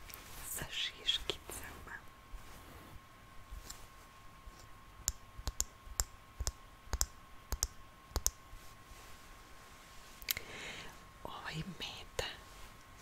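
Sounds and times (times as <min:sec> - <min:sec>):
fingertips tapping plastic eyes: 0:05.0 - 0:08.4.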